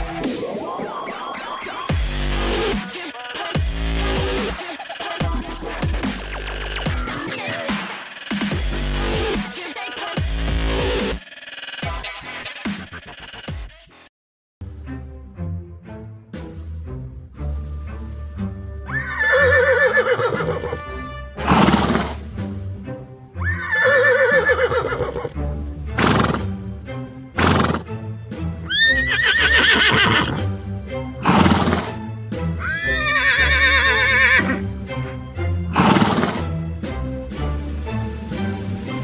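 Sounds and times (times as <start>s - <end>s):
background music: 0.0s - 14.0s, 14.6s - 39.0s
horse blowing: 18.9s - 20.8s, 21.4s - 22.3s, 23.4s - 26.5s, 27.4s - 27.9s, 28.7s - 30.5s, 31.2s - 32.0s, 32.6s - 34.6s, 35.7s - 36.6s
horse whinnying: 18.9s - 20.8s, 21.4s - 22.2s, 23.4s - 25.4s, 26.0s - 26.5s, 27.4s - 27.8s, 28.7s - 30.5s, 31.2s - 32.0s, 32.6s - 34.6s, 35.7s - 36.4s.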